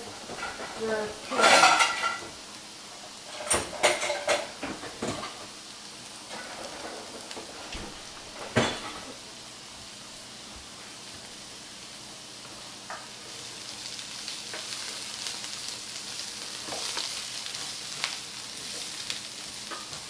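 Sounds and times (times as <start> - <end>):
vegetables sizzling in frying pan: 0.0 - 20.0.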